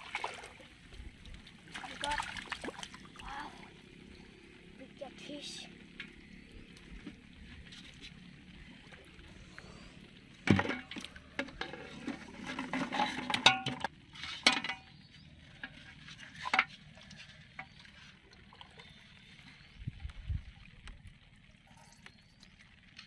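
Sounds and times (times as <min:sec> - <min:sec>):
water sloshing: 0:00.0 - 0:05.0.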